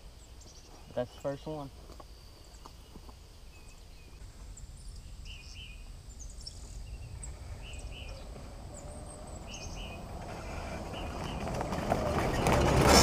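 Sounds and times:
birds chirping: 0.0 - 13.0
golf cart rumbling: 6.4 - 13.0.

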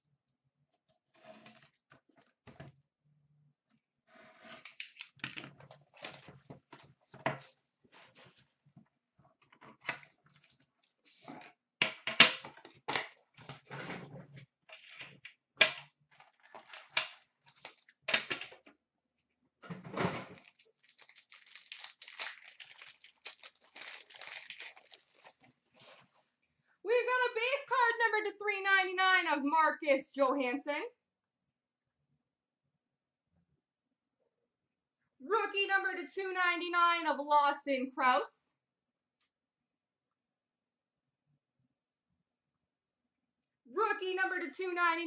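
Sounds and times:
plastic rustling: 16.1 - 18.0, 20.2 - 26.3
shrink-wrap crinkling: 16.1 - 18.0, 20.3 - 26.2.

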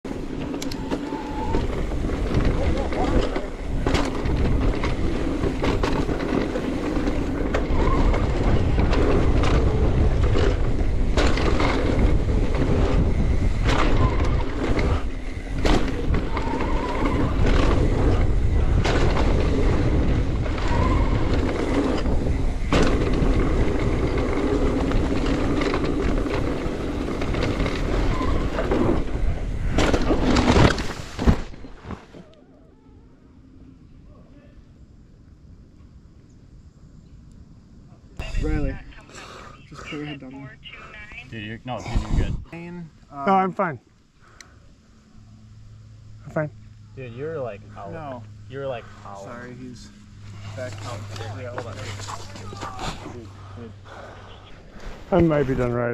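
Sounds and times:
bike tyres rumbling: 0.0 - 38.6, 43.3 - 55.9
bike clattering over bumps: 0.1 - 32.2
wind buffeting a microphone: 0.2 - 30.5, 41.8 - 42.6
bike crash impact: 2.2 - 32.2.

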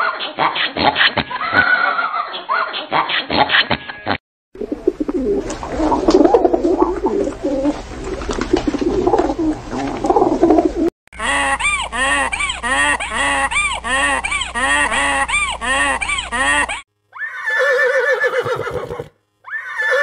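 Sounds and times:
pigeons cooing: 4.6 - 10.9
donkey braying: 4.8 - 20.0.

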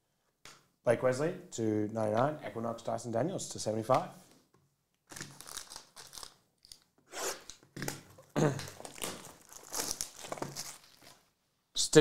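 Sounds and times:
plastic shrink-wrap tearing: 5.1 - 7.6, 8.6 - 11.3.

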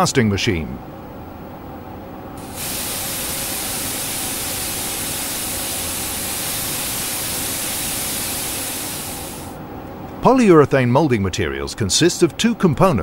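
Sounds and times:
vacuum machine hissing: 2.4 - 9.6.

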